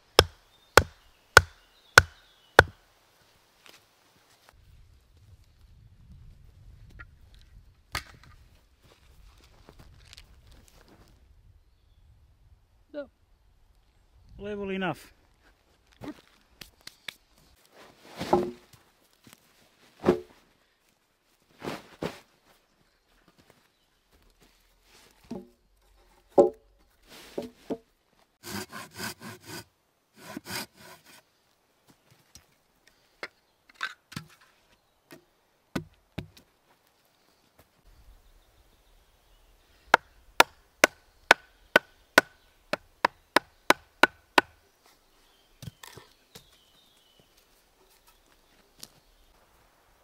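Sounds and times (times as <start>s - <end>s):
sharp wooden knocks: 0.2s - 2.8s, 39.9s - 44.6s.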